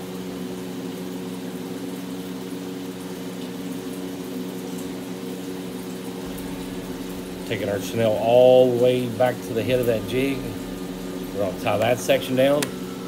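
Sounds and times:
steady machine hum: 3.9s - 13.0s.

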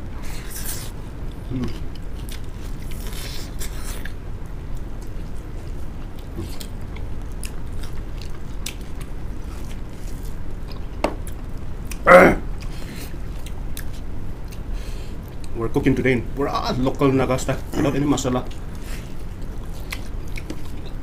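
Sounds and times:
steady low hum: 0.0s - 21.0s
chewing and lip-smacking: 1.6s - 12.0s, 12.6s - 15.6s, 18.5s - 21.0s.

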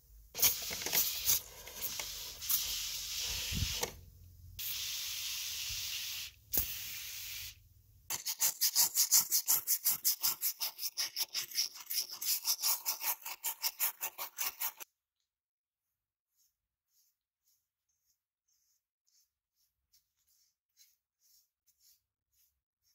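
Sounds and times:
spray hissing: 0.4s - 3.9s, 4.6s - 7.6s.

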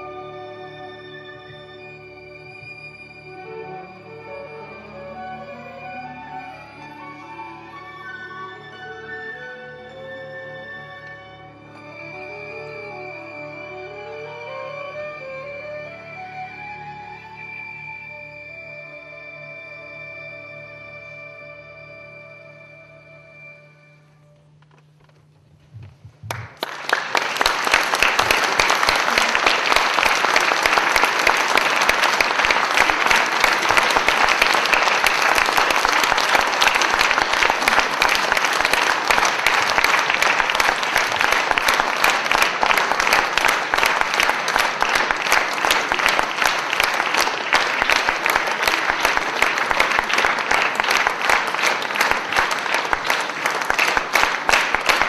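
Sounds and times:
audience applauding: 26.2s - 55.0s.

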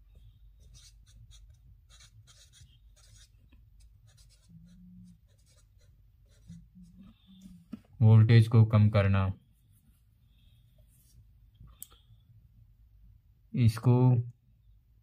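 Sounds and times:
marker pen scratching: 0.6s - 7.4s.

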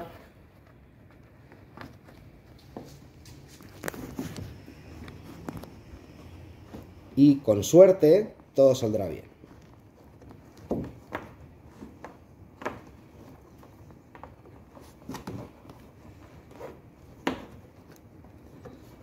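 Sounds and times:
cord rubbing on plastic hull: 0.0s - 7.2s.

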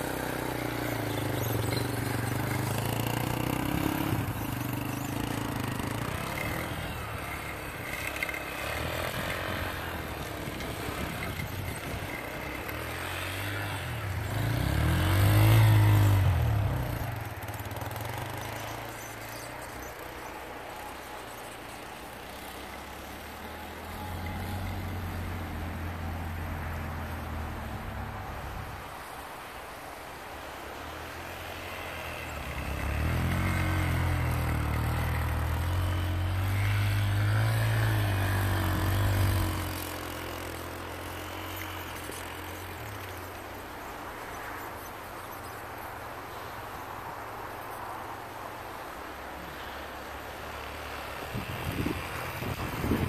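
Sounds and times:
dirt bike engine revving: 0.0s - 27.6s, 31.3s - 43.4s.

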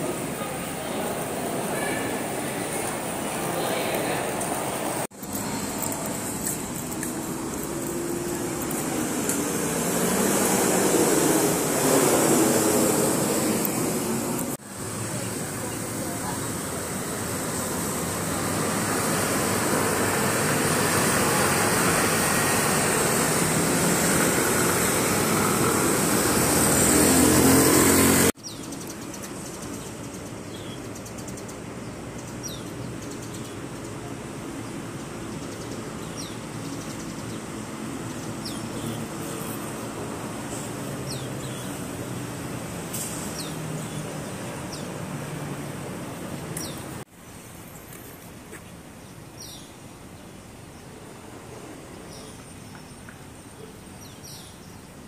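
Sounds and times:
passing cars and scooters: 0.0s - 48.4s
birds chirping: 15.1s - 42.1s, 43.2s - 47.0s, 47.7s - 51.0s, 52.0s - 54.9s.

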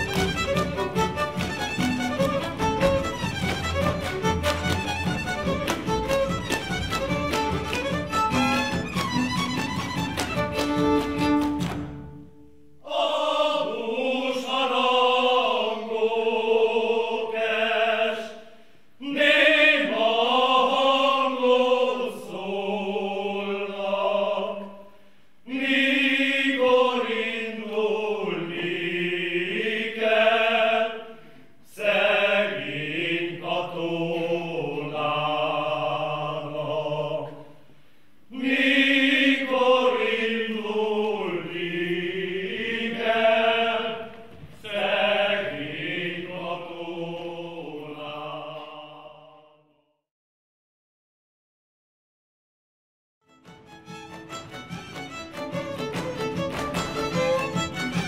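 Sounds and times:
men's choir singing unaccompanied: 12.8s - 24.8s, 25.5s - 37.5s, 38.3s - 49.6s.

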